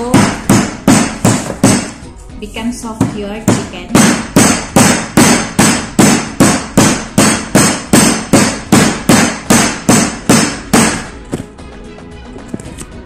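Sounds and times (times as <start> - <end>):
meat tenderizer pounding meat: 0.0 - 2.0, 3.0 - 11.2.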